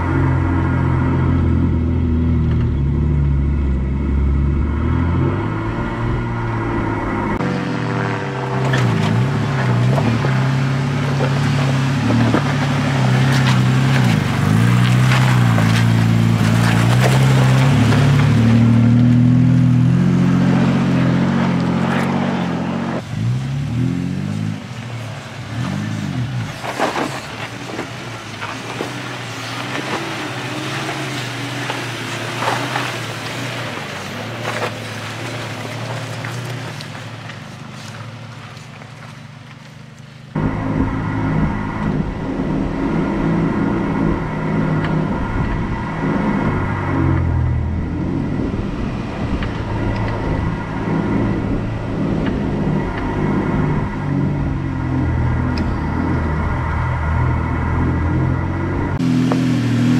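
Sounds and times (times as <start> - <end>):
vehicle engines revving: 0.0 - 59.9
tyres crunching over stones: 8.6 - 19.3, 25.0 - 40.4.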